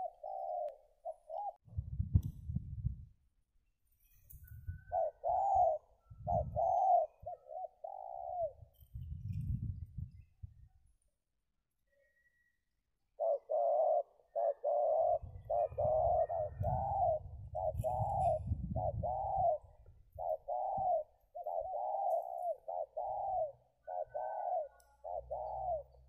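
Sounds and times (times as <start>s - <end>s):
dove cooing: 0.0s - 1.6s, 4.7s - 9.8s, 13.1s - 26.0s.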